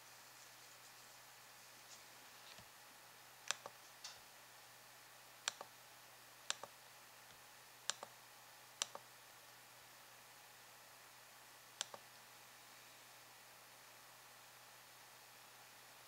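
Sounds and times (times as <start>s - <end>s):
faint steady hiss: 0.0s - 16.0s
computer mouse button clicks: 3.5s - 3.8s, 5.5s - 5.7s, 6.5s - 6.7s, 7.9s - 8.1s, 8.8s - 9.0s, 11.8s - 12.0s.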